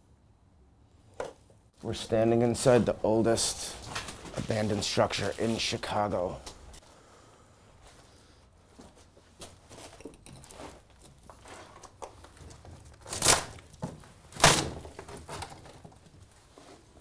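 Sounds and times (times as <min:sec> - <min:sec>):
footsteps crunching over rubble: 0:02.5 - 0:06.8, 0:08.6 - 0:17.0
debris knocking and crinkling: 0:03.8 - 0:05.7, 0:08.8 - 0:16.5.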